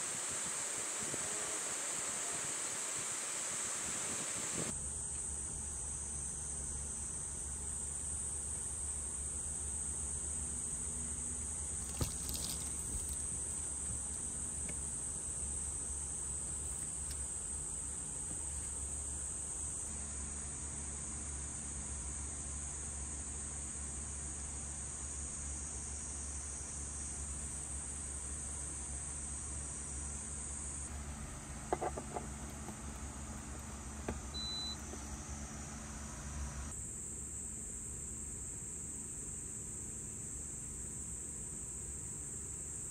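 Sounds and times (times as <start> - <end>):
insects chirping chorus: 0.0 - 35.5
short electronic beep: 34.3 - 34.8.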